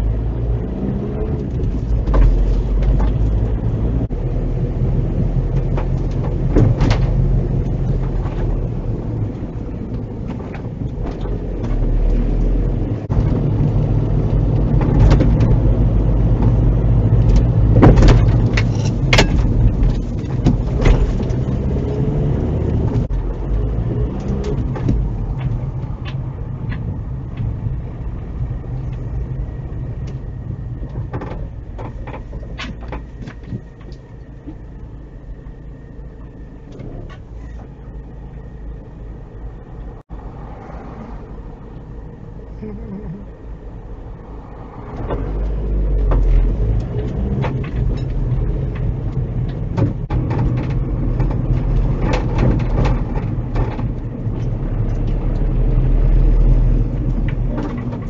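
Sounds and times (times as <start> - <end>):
car engine and tyre rumble: 0.0 - 58.0
knocks and clicks in car: 1.3 - 3.8, 5.1 - 34.7, 44.9 - 58.0.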